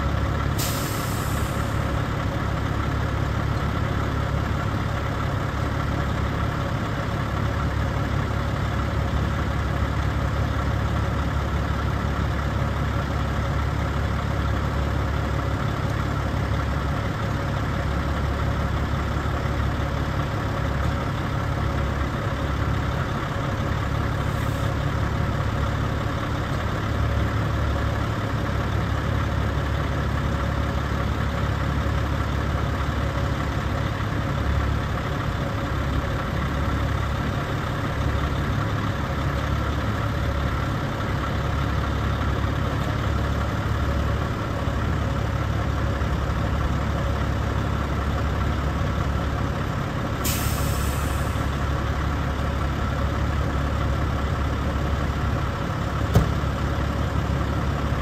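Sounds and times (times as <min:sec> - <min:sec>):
diesel truck engine idling: 0:00.0 - 0:58.0
air hiss: 0:00.6 - 0:01.9, 0:50.2 - 0:51.5.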